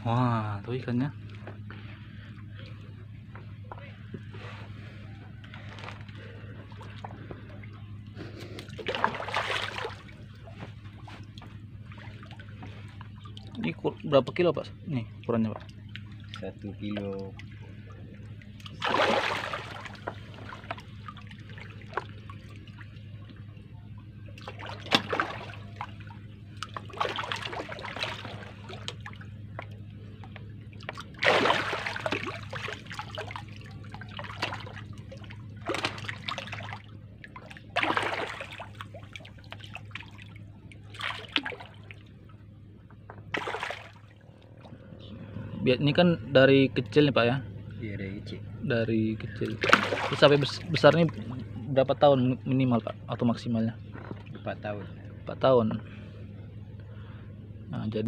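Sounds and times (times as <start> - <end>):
steady low hum: 0.0 - 58.0
fish splashing at surface: 8.6 - 13.5, 18.6 - 22.8, 24.4 - 29.7, 30.8 - 42.0, 43.3 - 44.2, 49.5 - 51.4.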